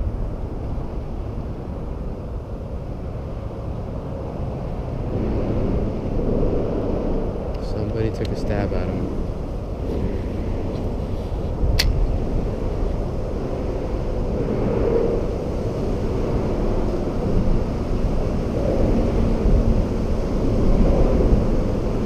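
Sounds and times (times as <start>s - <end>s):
low rumbling background noise: 0.0s - 22.0s
sharp click: 11.7s - 12.0s.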